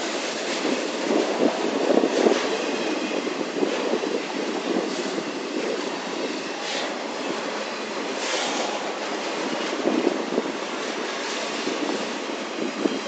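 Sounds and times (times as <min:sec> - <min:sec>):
freight train wheels rumbling: 0:00.0 - 0:13.0
brief hissing: 0:08.2 - 0:09.6.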